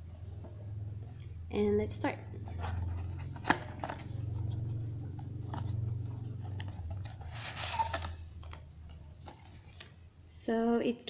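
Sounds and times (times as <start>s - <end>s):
low hum: 0.0s - 9.6s
contents sliding out rustle: 6.5s - 10.0s.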